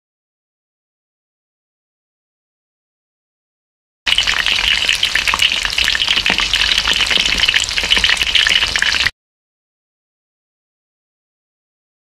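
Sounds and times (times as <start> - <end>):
tempura sizzling in hot oil: 4.1 - 9.1.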